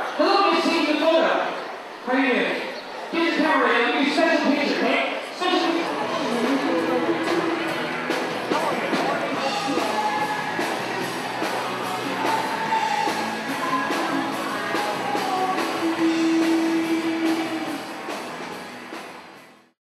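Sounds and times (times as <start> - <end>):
rock song with guitar and drums: 5.9 - 19.6.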